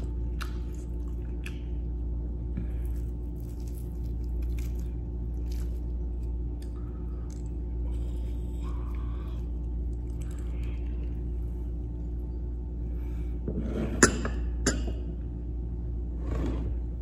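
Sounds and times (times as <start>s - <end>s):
chewing: 0.0s - 1.8s, 2.7s - 11.4s
steady low hum: 0.0s - 17.0s
cabbage leaves tearing: 2.8s - 6.4s.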